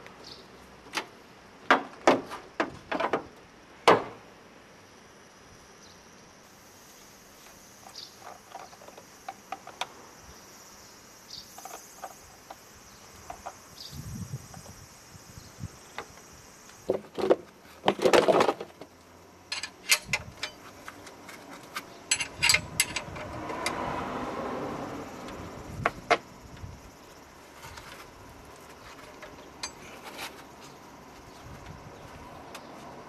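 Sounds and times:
insects chirping: 0.0s - 33.0s
sharp metal clicks: 19.5s - 23.8s.

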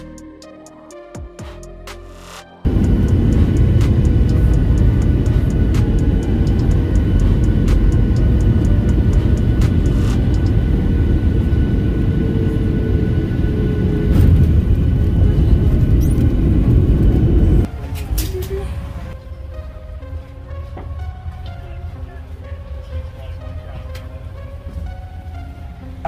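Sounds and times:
music: 0.0s - 12.3s, 14.1s - 26.0s
vehicle rumble in motion: 2.7s - 19.2s.

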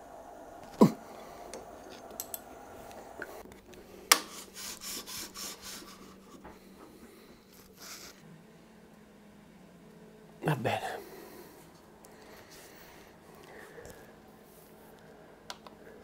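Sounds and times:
faint steady hum: 0.0s - 16.0s
scraping strokes: 4.2s - 8.2s.

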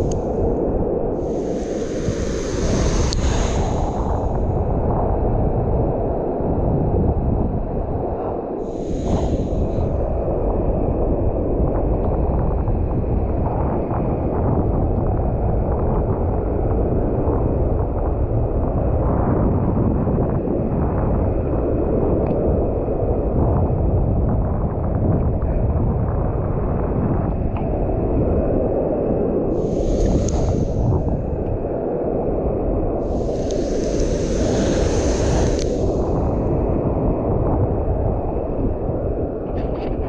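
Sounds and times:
wind rumble on microphone: 0.0s - 40.0s
brief hiss: 1.2s - 4.4s, 29.6s - 30.8s, 33.1s - 36.0s.

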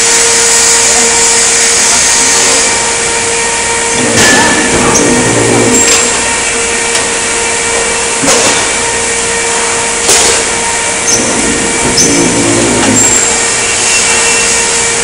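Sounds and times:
machine hum: 0.0s - 15.0s
sharp metallic clanks: 4.0s - 6.3s.

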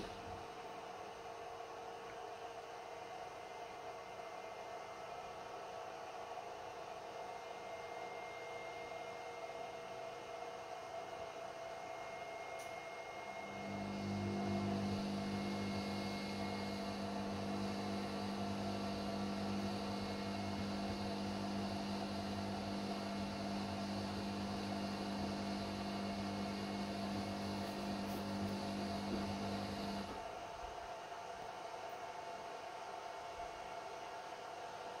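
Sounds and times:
power inverter humming: 13.4s - 30.3s.

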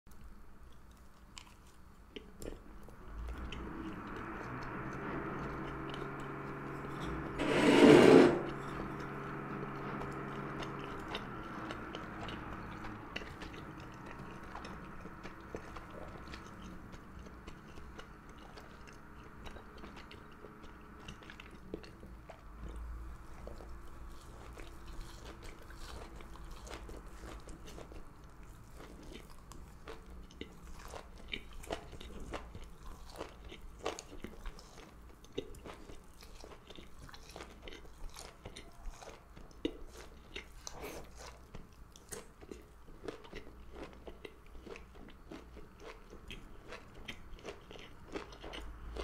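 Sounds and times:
chewing food: 0.1s - 6.6s, 9.1s - 49.0s
machine hum: 2.3s - 32.9s
loud rushing noise: 3.0s - 16.6s.

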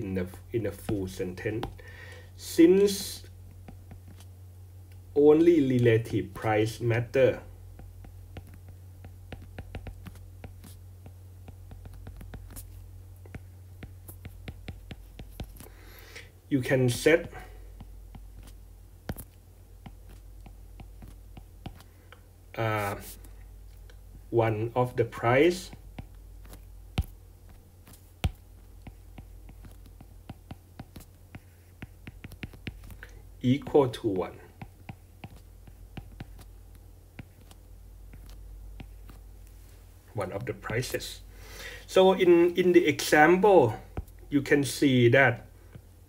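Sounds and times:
steady low hum: 0.0s - 46.0s
stylus tapping on glass screen: 7.8s - 12.6s.

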